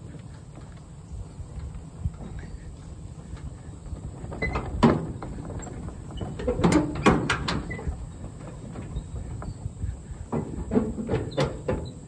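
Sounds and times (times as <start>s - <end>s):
vehicle rumbling: 0.0s - 12.0s
sharp knocks and rattles: 3.4s - 12.0s.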